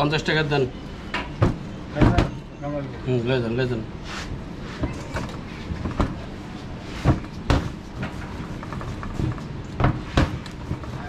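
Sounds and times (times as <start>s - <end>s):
steady background noise: 0.0s - 11.0s
knocks on steel worktable: 9.8s - 10.8s.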